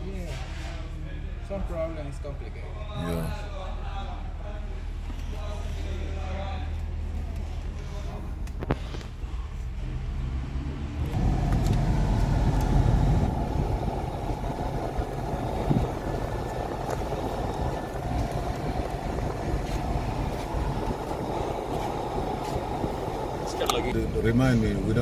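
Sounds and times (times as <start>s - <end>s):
car blower fan rushing: 11.0s - 25.0s.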